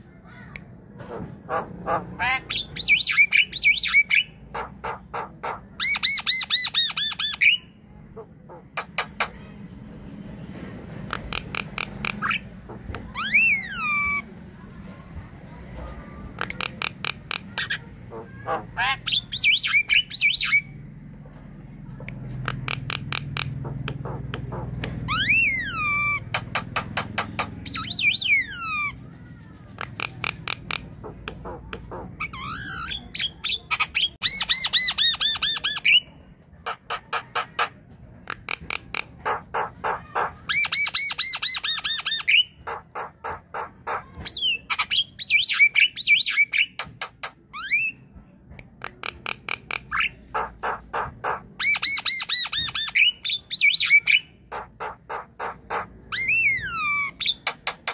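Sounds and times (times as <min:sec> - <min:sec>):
bird singing: 0:01.1 - 0:09.4, 0:11.3 - 0:14.3, 0:16.6 - 0:20.8, 0:22.0 - 0:37.7, 0:49.7 - 0:57.9.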